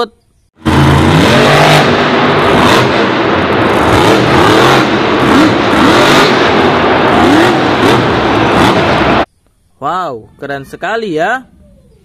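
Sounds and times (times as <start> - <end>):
truck engine revving: 0.6 - 9.3.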